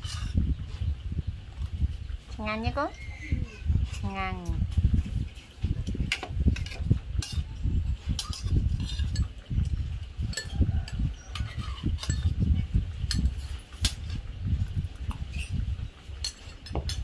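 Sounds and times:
kitchenware clicking and clinking: 6.0 - 9.5, 10.3 - 12.4, 16.2 - 17.0.

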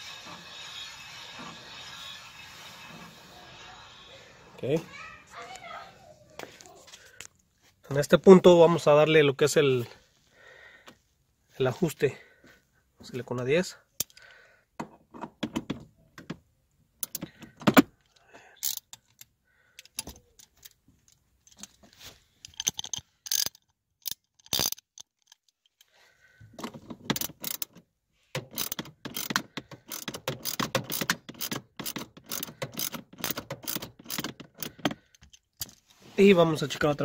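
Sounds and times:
metallic clicks and clinks: 18.0 - 21.8, 22.4 - 25.9
ratchet wrench clicking: 18.6 - 20.1, 22.4 - 25.4, 27.1 - 27.8, 28.4 - 35.7.

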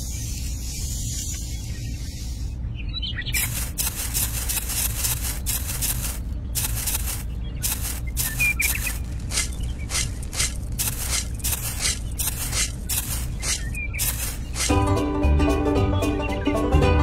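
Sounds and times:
low hum: 0.2 - 15.5
shovel scraping sand: 3.4 - 14.8.

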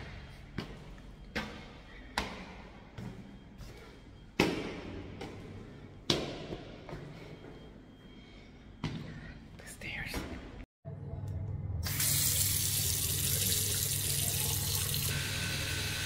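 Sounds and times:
footsteps on stairs echoing: 0.0 - 10.7.

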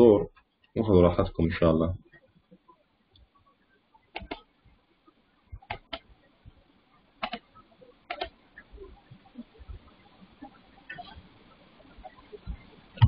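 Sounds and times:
computer mouse clicking: 4.1 - 4.5, 5.6 - 6.1, 7.2 - 7.5, 8.1 - 8.7.

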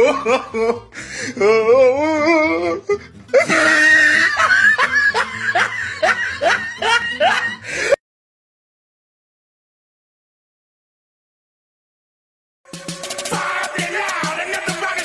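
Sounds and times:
person laughing: 0.0 - 1.7, 2.6 - 8.0.

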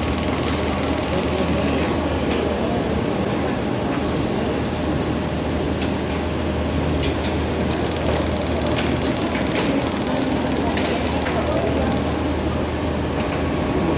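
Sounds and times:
machinery humming: 0.0 - 3.6, 7.5 - 13.9.

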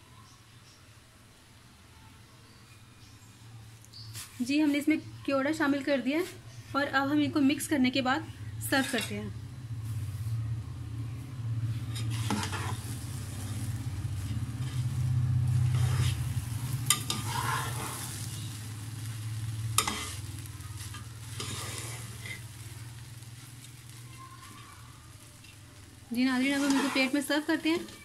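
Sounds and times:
spatula scraping a wok: 8.6 - 9.2, 11.7 - 28.0.

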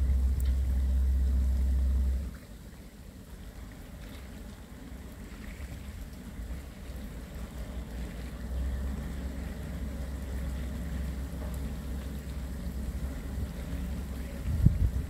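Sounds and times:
diesel engine drone: 0.0 - 2.5
wind buffeting microphone: 13.0 - 15.0.

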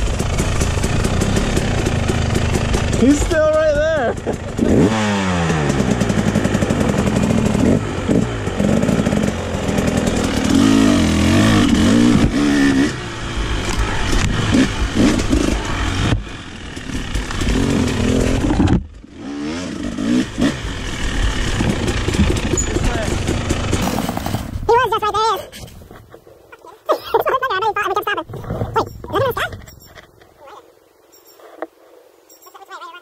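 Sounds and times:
dirt bike engine revving: 0.0 - 24.7.

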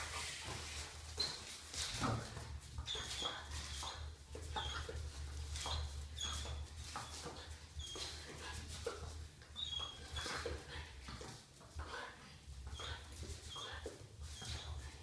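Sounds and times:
puppy paws scuffling on tiles: 0.0 - 15.0
puppy squeaks: 1.2 - 1.5, 2.8 - 8.3, 9.5 - 10.6, 12.6 - 14.9.

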